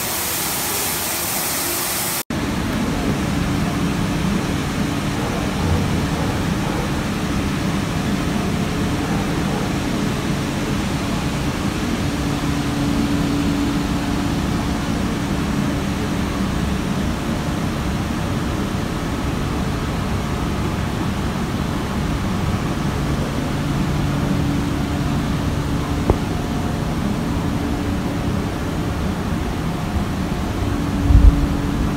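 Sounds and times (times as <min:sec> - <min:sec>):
grain machinery droning: 0:00.0 - 0:05.1
low hum: 0:22.6 - 0:31.9.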